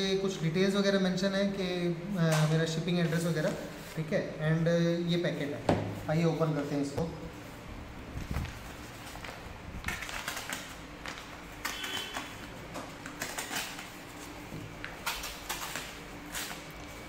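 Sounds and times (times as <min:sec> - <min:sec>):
packaging scraping and crinkling: 0:08.2 - 0:17.0.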